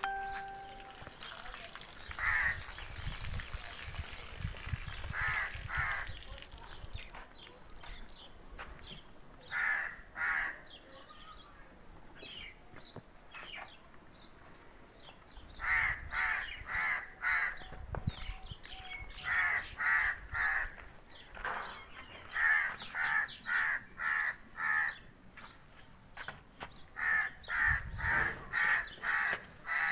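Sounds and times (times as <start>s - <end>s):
crow cawing: 9.5s - 10.6s, 22.4s - 25.0s, 27.0s - 27.8s, 28.5s - 29.9s.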